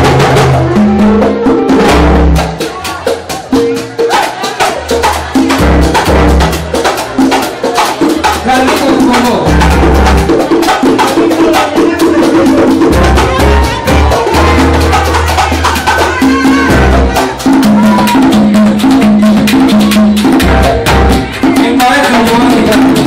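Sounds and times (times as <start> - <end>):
congas: 0.0 - 23.0
long held bass notes: 12.9 - 15.5.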